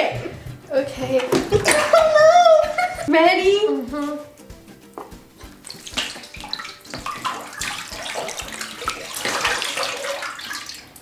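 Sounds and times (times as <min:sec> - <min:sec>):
slime pouring and splashing: 0:05.6 - 0:11.0.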